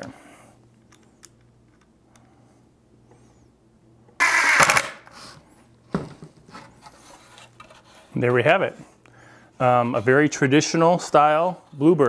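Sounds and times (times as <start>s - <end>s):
cordless drill driving screw: 4.2s - 4.9s.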